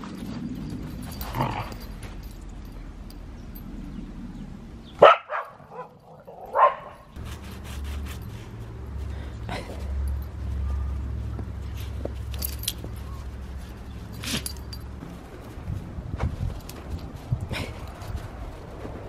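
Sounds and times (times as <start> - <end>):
dogs barking: 5.0 - 7.1.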